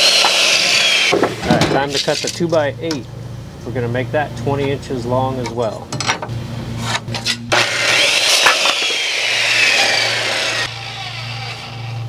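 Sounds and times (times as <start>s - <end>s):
circular saw cutting wood: 0.0s - 1.4s, 6.9s - 12.0s.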